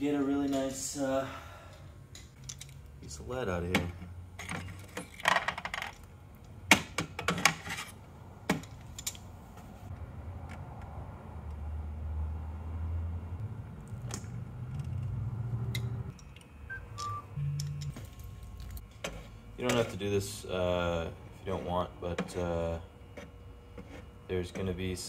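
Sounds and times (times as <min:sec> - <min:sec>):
low steady hum: 0:12.4 - 0:25.0.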